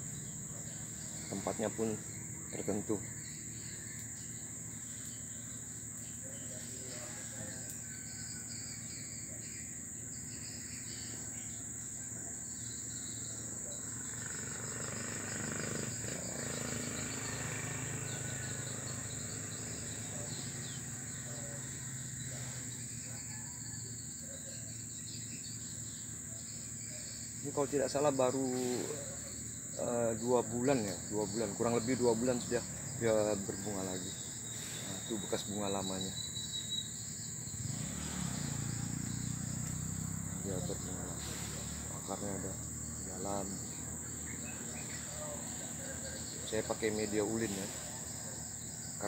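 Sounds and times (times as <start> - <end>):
insects droning: 0.0 - 49.0.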